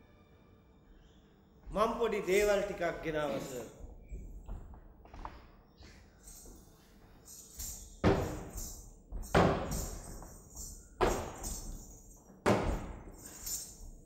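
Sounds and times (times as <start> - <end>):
light jingling: 6.1 - 14.0.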